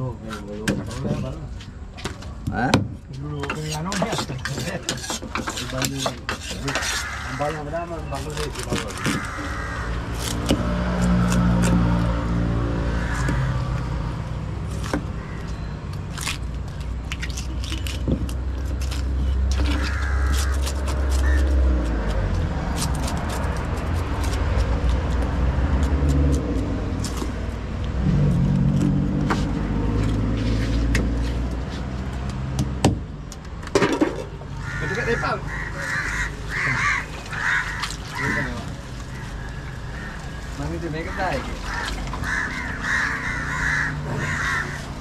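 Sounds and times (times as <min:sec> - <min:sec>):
knife knocking and scraping fish: 0:03.5 - 0:07.2.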